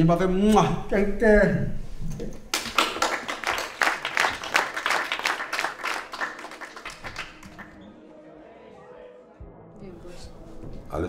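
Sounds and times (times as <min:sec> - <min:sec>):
audience applauding: 0:02.5 - 0:07.8.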